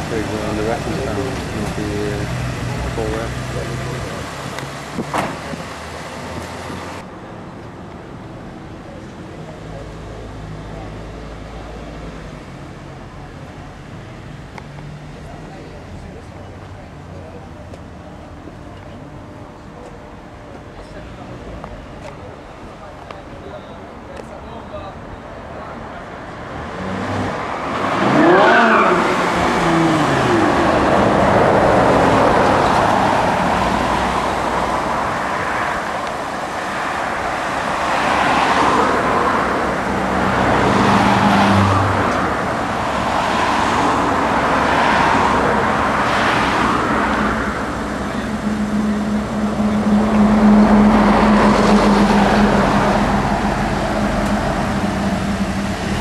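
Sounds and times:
car engine revving: 0:00.0 - 0:07.0, 0:26.5 - 0:56.0.

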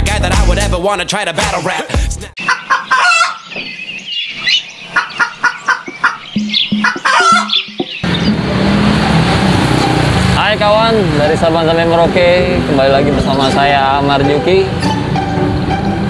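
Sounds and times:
chickens clucking: 0:02.4 - 0:08.4
motor scooter running: 0:08.0 - 0:14.2.

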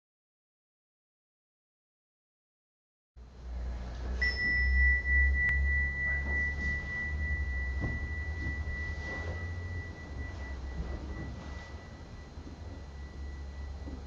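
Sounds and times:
low steady hum: 0:03.2 - 0:14.0
high bell-like chime: 0:04.2 - 0:14.0.

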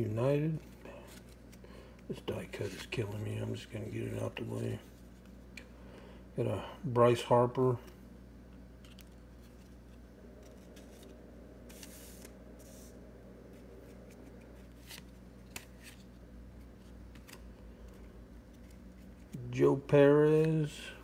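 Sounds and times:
low hum: 0:00.0 - 0:21.0
trading cards rustling and clicking: 0:08.8 - 0:20.8.

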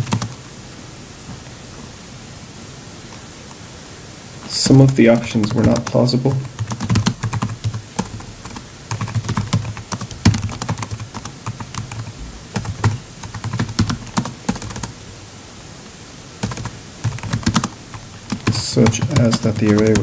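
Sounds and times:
typing on a keyboard: 0:00.0 - 0:00.4, 0:05.4 - 0:14.9, 0:16.4 - 0:20.0.

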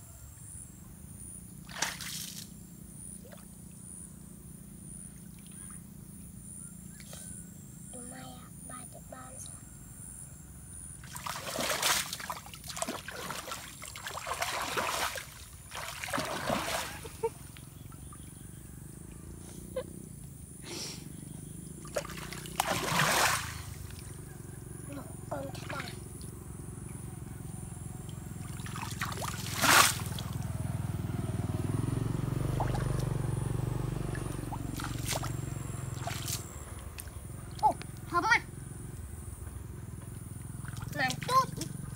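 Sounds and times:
water splashing and sloshing: 0:01.6 - 0:02.6, 0:11.0 - 0:19.2, 0:21.8 - 0:24.2, 0:25.3 - 0:26.3, 0:28.0 - 0:30.6, 0:32.4 - 0:38.1, 0:39.9 - 0:41.9.

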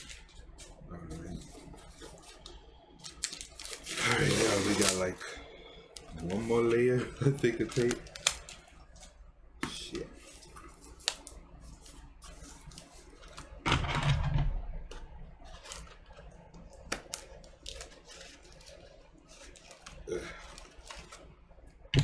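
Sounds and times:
cardboard rustling: 0:15.4 - 0:21.3.

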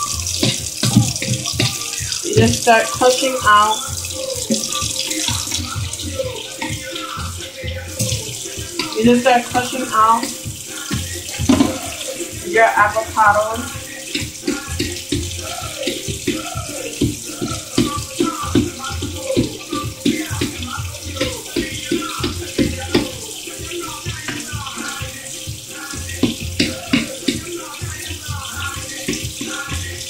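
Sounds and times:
utensil knocking against bowl: 0:10.9 - 0:12.0.

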